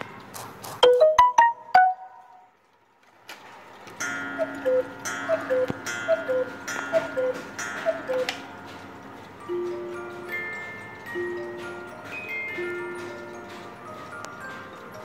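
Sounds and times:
cuckoo clock calling: 0.8 - 2.5, 3.7 - 15.0
short plinking notes: 0.8 - 2.5.

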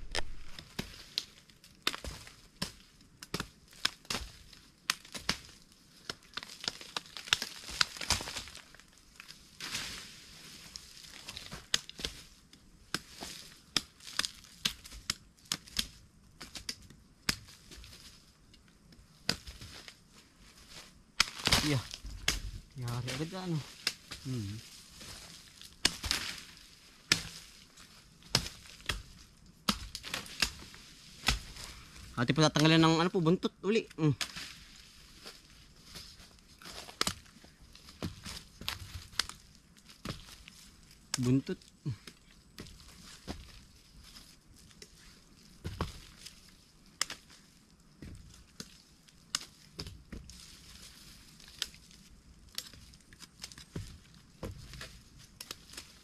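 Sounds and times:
machete chopping roots: 1.8 - 8.7, 21.2 - 32.8, 36.0 - 37.3.

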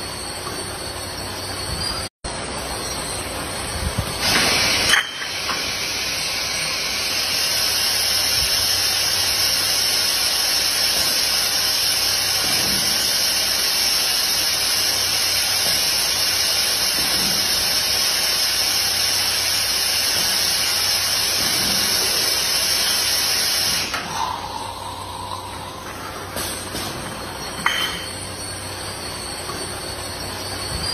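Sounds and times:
short squeal: 0.0 - 3.4, 23.8 - 30.9
bottle filling machine hiss: 2.7 - 30.9.

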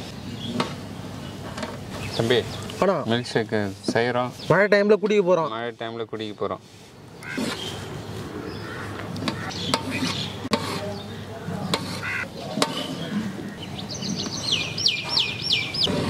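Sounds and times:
knife tapping metal plate: 12.6 - 12.9
bird whistling: 13.8 - 15.9.

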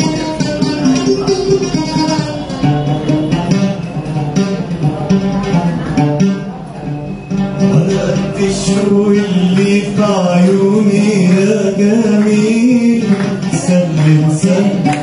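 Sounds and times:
oud plucked notes: 0.0 - 15.0
man singing: 7.7 - 15.0.

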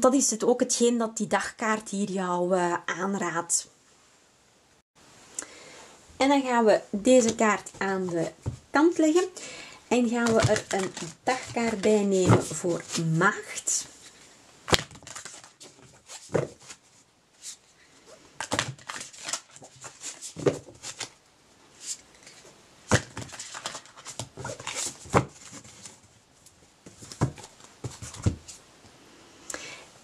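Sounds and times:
cards being shuffled: 10.1 - 17.6, 18.4 - 21.2, 21.8 - 26.1.

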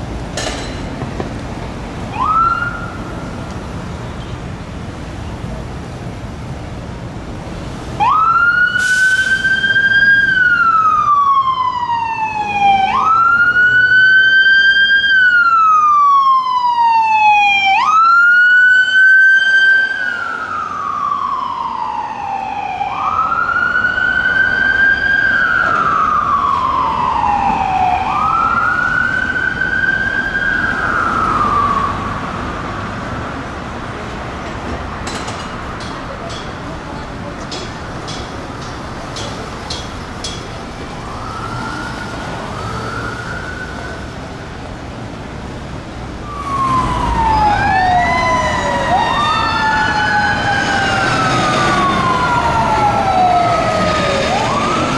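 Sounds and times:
emergency vehicle siren wailing: 2.0 - 3.5, 7.9 - 33.0, 40.6 - 44.9, 45.8 - 54.9.

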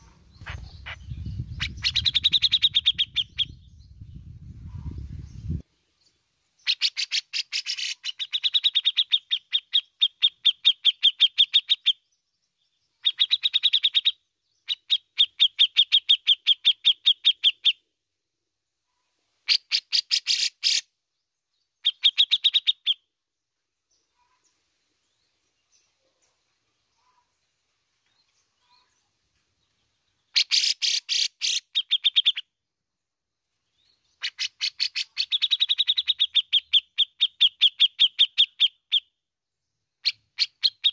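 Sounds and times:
bird chipping calls: 0.0 - 3.6, 6.6 - 12.0, 30.3 - 32.5, 34.1 - 39.1, 40.0 - 40.9.

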